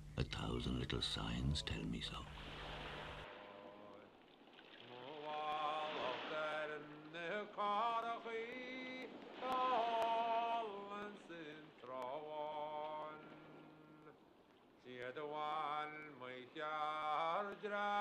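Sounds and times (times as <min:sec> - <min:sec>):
man singing wordless melody: 0:03.3 - 0:04.2, 0:04.8 - 0:18.0.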